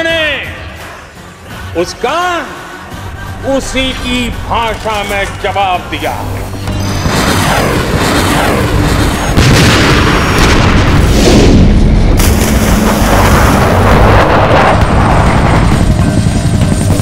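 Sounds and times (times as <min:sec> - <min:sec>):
heavy weapons fire booming: 0:06.9 - 0:16.5.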